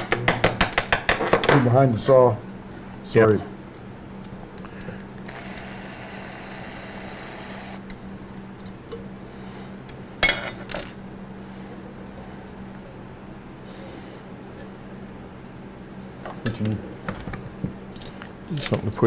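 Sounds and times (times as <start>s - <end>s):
cordless drill running: 5.2s - 7.9s.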